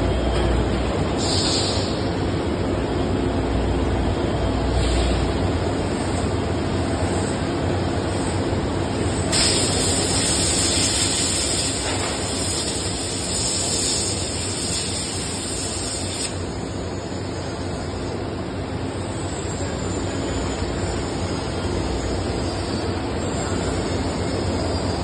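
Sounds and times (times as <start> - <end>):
high hiss: 9.3 - 16.5.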